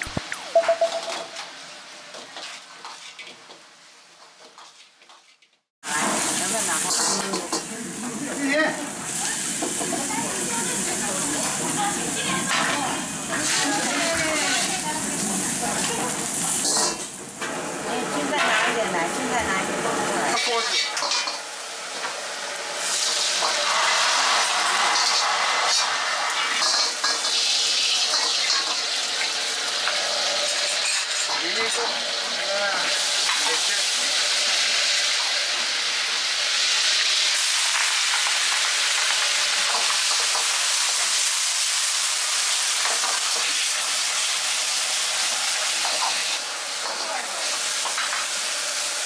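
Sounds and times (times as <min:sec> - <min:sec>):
greens sizzling in a wok: 0:00.9 - 0:49.0
ladle stirring in a wok: 0:02.0 - 0:08.5, 0:14.6 - 0:17.4, 0:20.4 - 0:21.4, 0:22.8 - 0:31.4.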